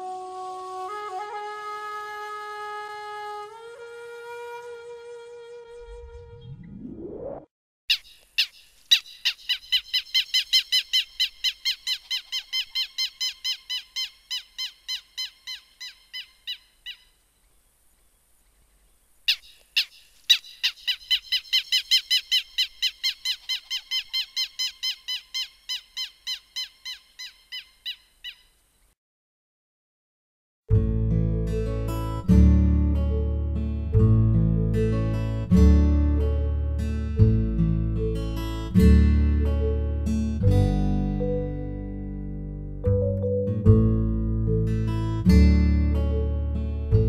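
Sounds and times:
canary alarm call: 7.9 - 17.2, 19.3 - 28.6.

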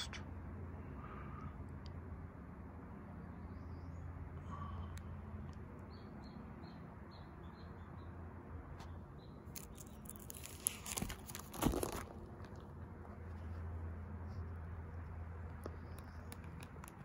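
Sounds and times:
plastic sleeves crinkling: 9.5 - 12.5.

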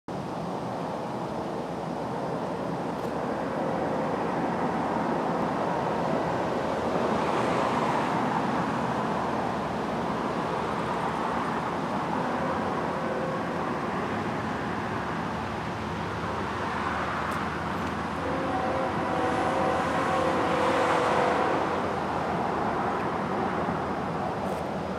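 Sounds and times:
distant road traffic rumble: 0.1 - 24.9.

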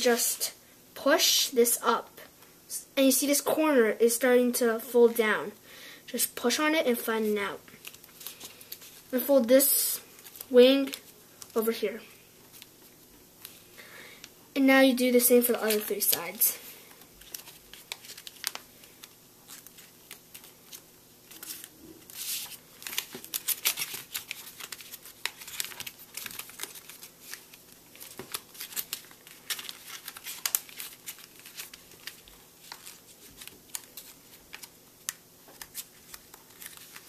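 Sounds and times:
paper crinkling and crackling: 7.7 - 9.2, 10.0 - 11.6, 12.4 - 13.7, 15.3 - 37.0.

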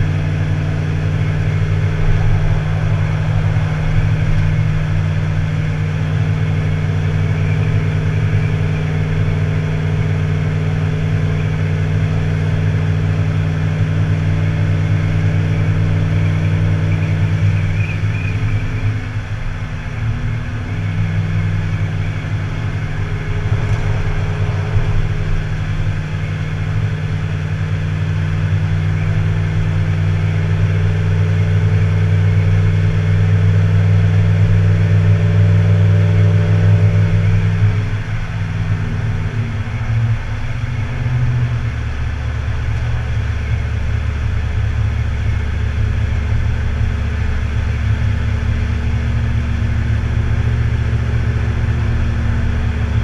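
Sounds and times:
vehicle engine running: 0.0 - 53.0.

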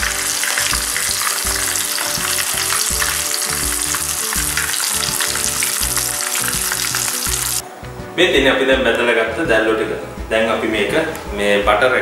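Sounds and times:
food deep-frying in oil: 0.0 - 7.6.

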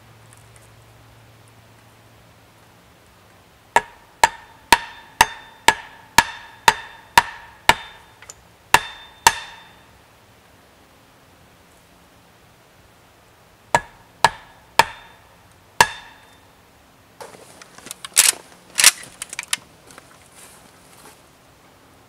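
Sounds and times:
axe head pounding wooden stake: 3.8 - 8.1, 8.7 - 9.8, 13.8 - 15.2, 15.8 - 16.2.

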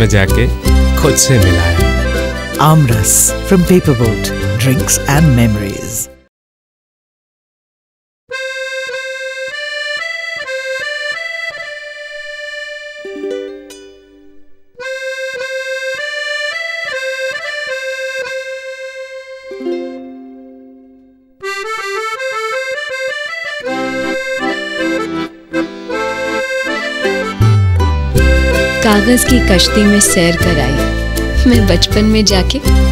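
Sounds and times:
accordion melody: 0.0 - 6.2, 8.3 - 32.9.

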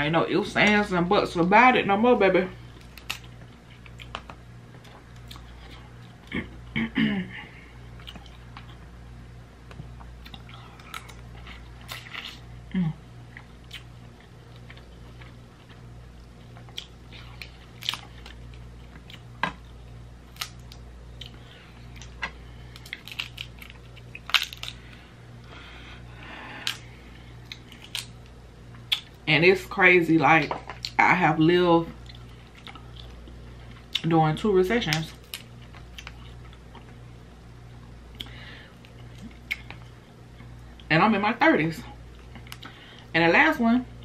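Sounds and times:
crab shells cracking: 22.1 - 24.9.

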